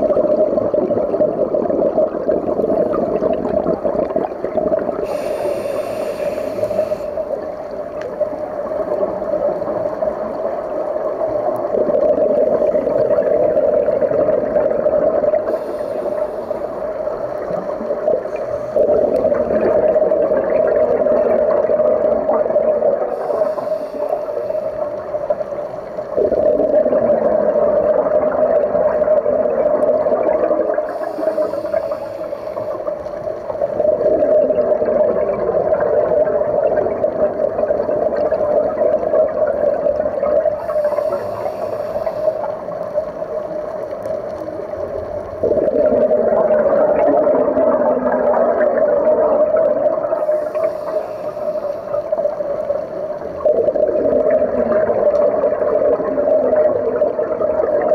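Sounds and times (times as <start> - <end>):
exhaled air bubbling: 0.0 - 57.9
regulator inhalation hiss: 4.9 - 8.2, 15.4 - 19.1, 23.1 - 26.2, 30.8 - 33.7, 40.4 - 43.2, 50.2 - 52.6.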